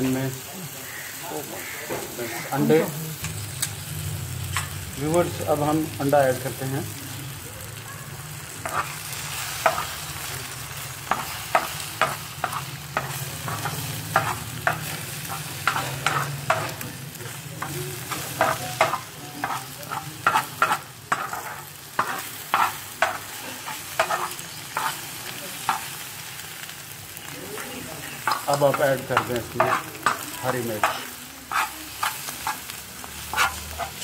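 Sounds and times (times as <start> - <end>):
egg sizzling in a pan: 0.0 - 34.0
metal spoon scraping a pan: 8.6 - 10.1, 11.1 - 16.9, 17.6 - 26.0, 28.0 - 34.0.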